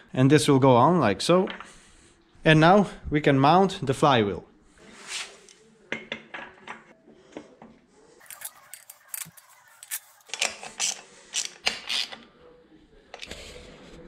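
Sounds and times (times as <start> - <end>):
hand tool turning bolts: 8.2 - 12.1.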